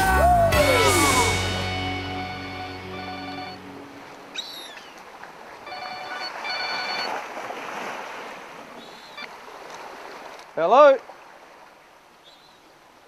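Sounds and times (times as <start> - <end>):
wind: 1.0 - 13.0
mobile phone ringtone: 2.2 - 3.8, 5.6 - 7.2
sea on rocks: 2.9 - 13.0.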